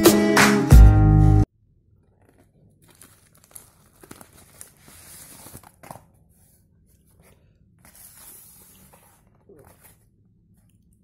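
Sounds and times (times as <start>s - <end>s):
plastic mailer crinkling: 2.0s - 6.2s.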